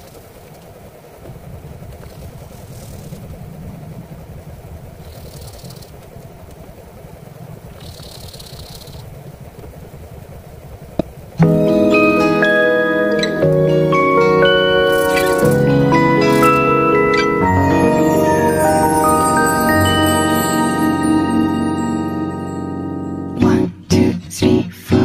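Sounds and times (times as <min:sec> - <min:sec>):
hissing rustles: 0:00.0 - 0:11.4, 0:13.0 - 0:19.7.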